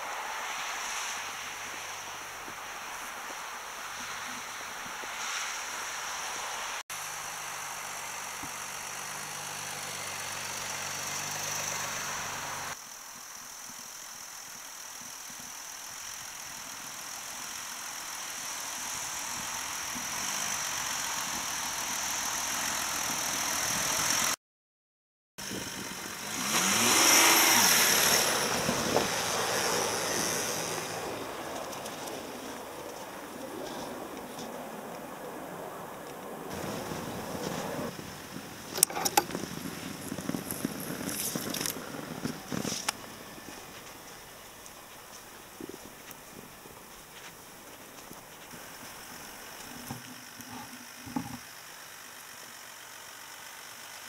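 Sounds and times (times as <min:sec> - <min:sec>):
diesel car engine revving: 0:07.0 - 0:12.8, 0:25.4 - 0:54.0.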